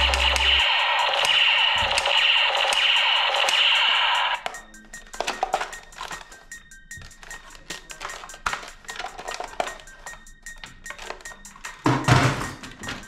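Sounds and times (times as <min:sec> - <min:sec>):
loud noisy burst: 0:00.0 - 0:04.4
plastic toy guns clattering: 0:05.2 - 0:06.4, 0:07.0 - 0:10.2, 0:10.9 - 0:13.0.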